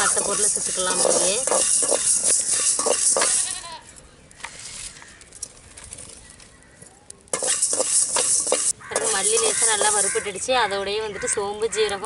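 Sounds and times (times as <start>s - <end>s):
metal ladle scraping seeds in pan: 0.0s - 3.7s, 7.3s - 10.3s.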